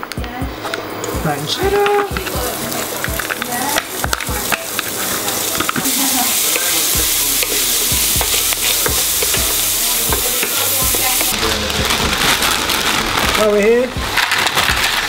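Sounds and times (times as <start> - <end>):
meat sizzling in oil: 1.3 - 15.0
wooden spoon knocking on pan: 5.5 - 11.4.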